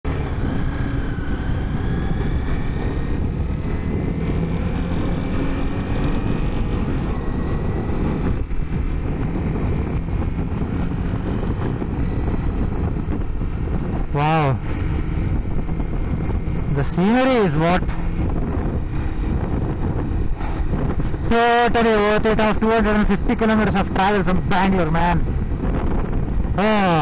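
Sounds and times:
motorcycle engine running: 0.1s - 27.0s
wind noise on microphone: 0.1s - 27.0s.

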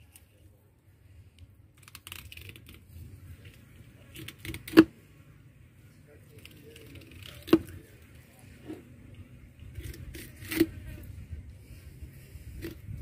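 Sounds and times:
knife scraping along fish bone: 9.8s - 11.1s.

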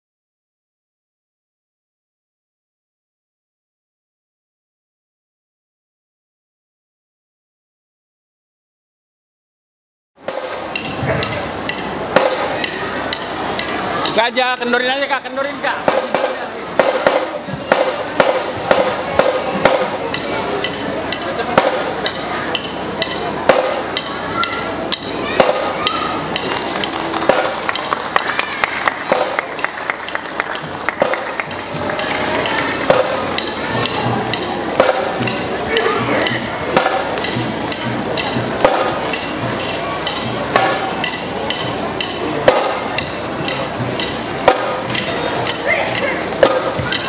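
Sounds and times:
background hubbub: 10.2s - 47.0s
percussion clicking beat: 10.2s - 47.0s.

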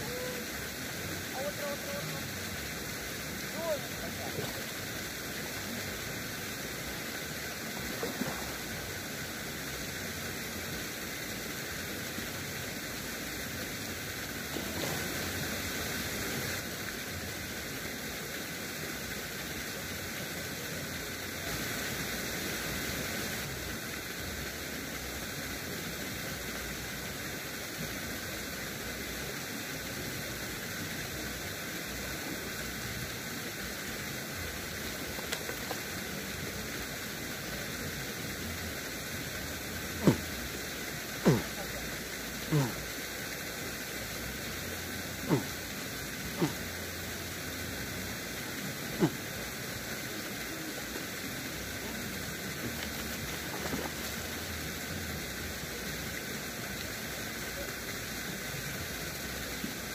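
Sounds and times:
outdoor background hiss: 0.0s - 59.9s.

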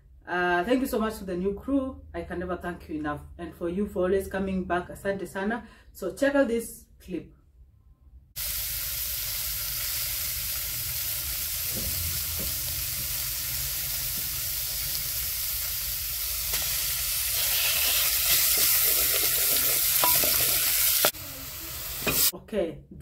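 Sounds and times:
onions sizzling in oil: 8.4s - 22.3s
wooden spoon scraping pot: 17.4s - 21.1s.

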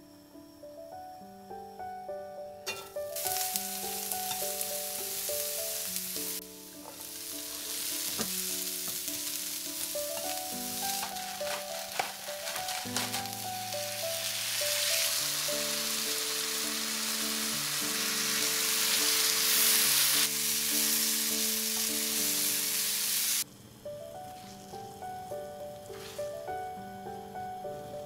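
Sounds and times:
soft background music: 0.0s - 28.0s
vegetables sizzling in a frying pan: 2.7s - 23.5s, 24.2s - 28.0s
utensil scraping a pan: 10.1s - 13.5s.

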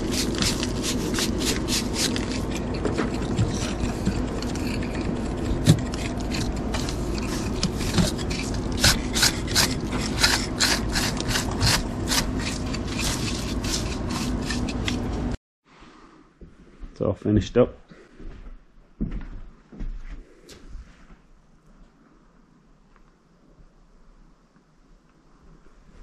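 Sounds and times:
brush scrubbing mortar: 0.0s - 15.4s
steady low hum: 0.0s - 26.0s.

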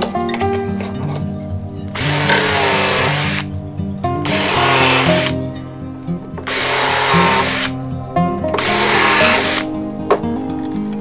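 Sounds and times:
background music: 0.0s - 11.0s
power drill boring into wood: 2.0s - 3.5s, 4.3s - 5.4s, 6.4s - 7.8s, 8.6s - 9.7s.

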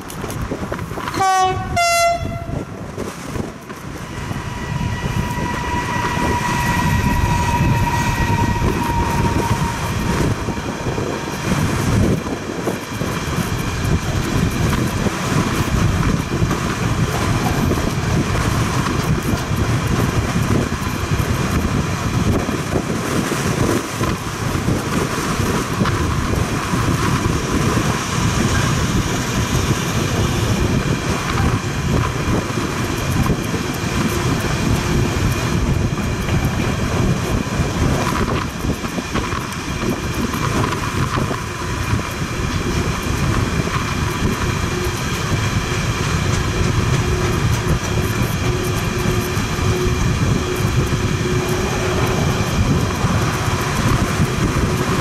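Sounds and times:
train wheels rumbling on rails: 0.0s - 55.0s.

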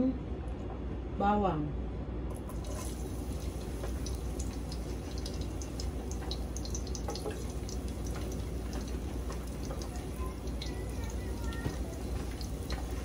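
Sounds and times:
garlic sizzling in oil: 2.4s - 13.0s
metal spoon tapping pot: 5.2s - 10.8s.

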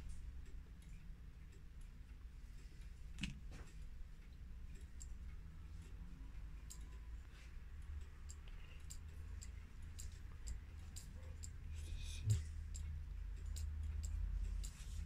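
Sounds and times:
steady low hum: 0.0s - 15.0s
small sharp clicks: 3.1s - 11.6s, 12.7s - 15.0s.

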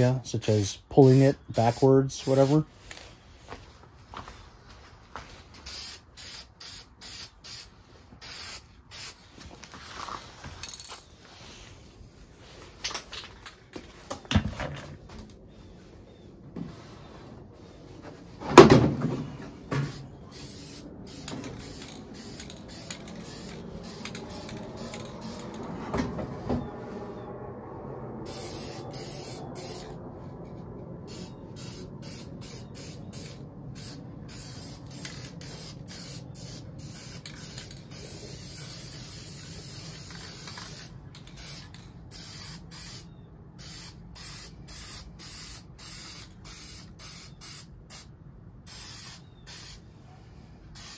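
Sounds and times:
spray paint can hissing: 1.0s - 2.6s, 5.6s - 9.2s, 19.8s - 25.6s, 28.2s - 30.0s, 31.1s - 49.8s.

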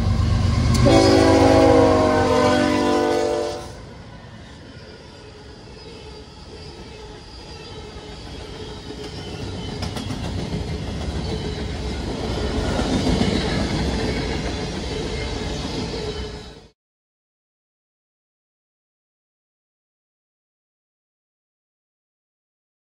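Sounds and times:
freight train wheels rumbling on rail: 0.0s - 16.7s.

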